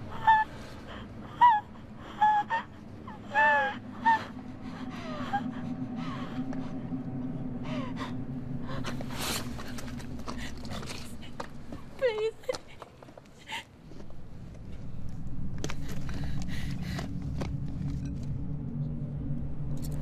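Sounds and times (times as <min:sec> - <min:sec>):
woman gasping and whimpering: 0:00.0 - 0:06.8
steady low hum: 0:00.0 - 0:20.0.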